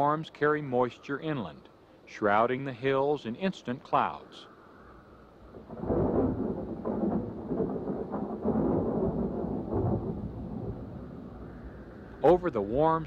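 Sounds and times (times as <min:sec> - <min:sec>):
thunder rumbling: 0:05.4 - 0:13.0.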